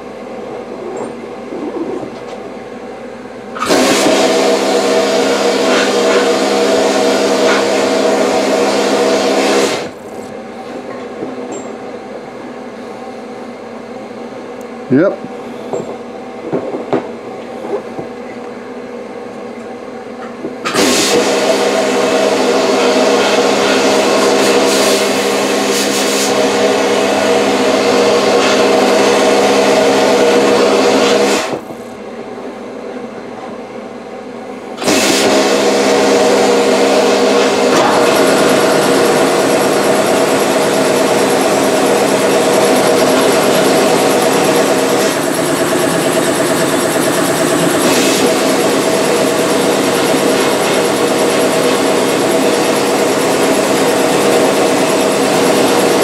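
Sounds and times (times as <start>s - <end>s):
steady machine hum: 0.0s - 56.0s
blasting cabinet blasts: 3.6s - 10.0s, 20.6s - 31.7s, 34.8s - 56.0s.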